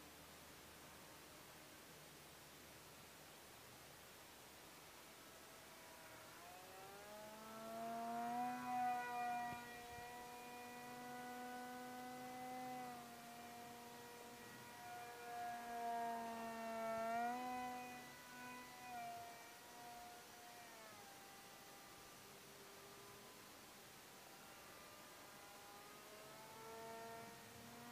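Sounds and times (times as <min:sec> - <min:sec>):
model airplane motor whining: 0:06.0 - 0:23.5, 0:24.4 - 0:27.9.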